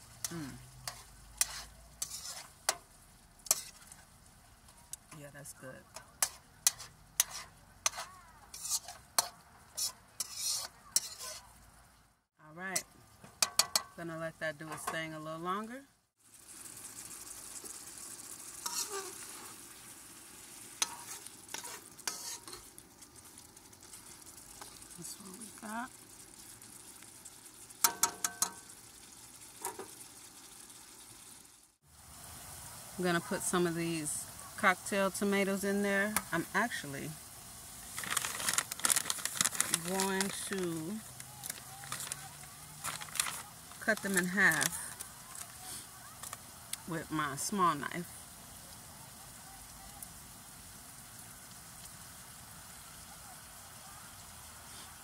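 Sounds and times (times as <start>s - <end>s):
sauce sizzling: 0.0s - 55.0s
metal spoon clinking on pan: 13.4s - 14.0s, 27.8s - 28.7s.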